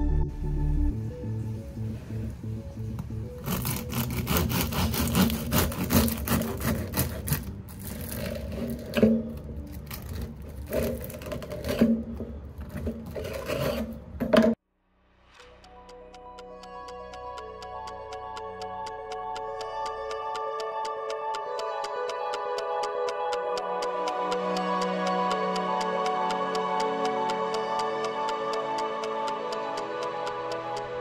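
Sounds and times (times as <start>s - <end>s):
bread knife sawing crusty bread: 3.4s - 9.0s, 12.8s - 13.9s.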